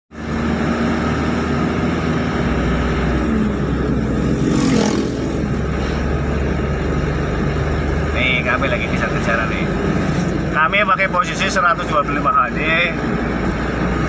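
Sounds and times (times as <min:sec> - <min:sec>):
road noise: 0:00.1 - 0:14.0
truck diesel engine running: 0:00.1 - 0:14.0
car passing whoosh: 0:03.9 - 0:06.4.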